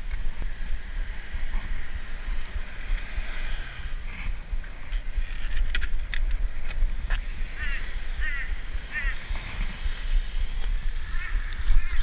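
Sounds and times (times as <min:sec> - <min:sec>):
wind rumbling on microphone: 0:00.0 - 0:12.0
bike metallic clicks and rattles: 0:04.9 - 0:07.2.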